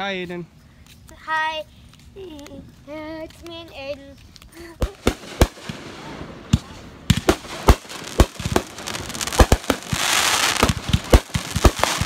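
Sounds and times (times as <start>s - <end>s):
fireworks crackling: 2.2s - 12.0s
fireworks bangs and pops: 4.7s - 12.0s.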